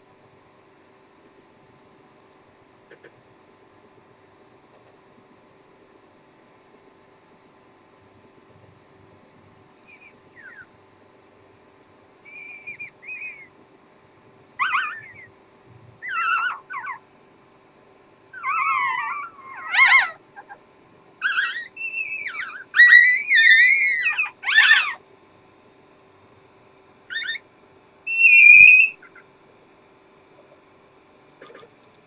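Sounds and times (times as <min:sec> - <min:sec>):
puppies squealing: 0:09.8 - 0:10.7, 0:12.3 - 0:13.5, 0:14.6 - 0:15.4, 0:16.0 - 0:17.0, 0:18.4 - 0:20.6, 0:21.2 - 0:25.0, 0:27.1 - 0:27.4, 0:28.1 - 0:29.2.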